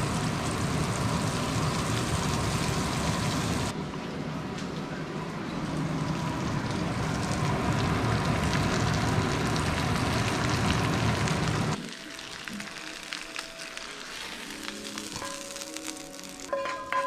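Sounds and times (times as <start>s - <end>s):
meat sizzling in a skillet: 0.0s - 3.7s, 7.9s - 16.6s.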